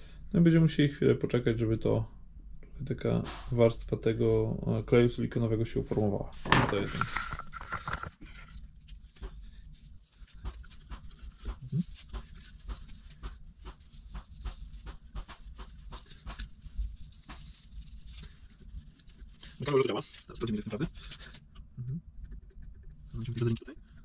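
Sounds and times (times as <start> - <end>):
cloth rag rustling and crinkling: 6.4 - 21.4.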